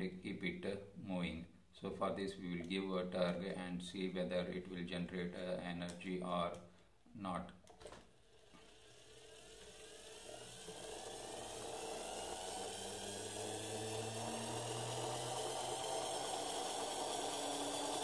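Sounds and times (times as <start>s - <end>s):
toy gears whirring whine: 8.2s - 18.0s.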